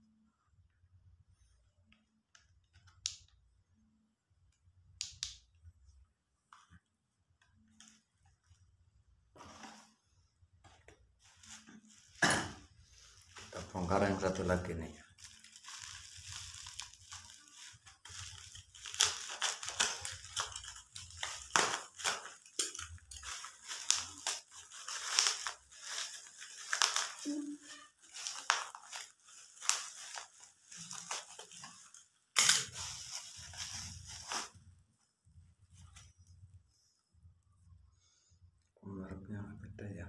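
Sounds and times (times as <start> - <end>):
plastic wrapping crinkling and ripping: 11.2 - 34.8.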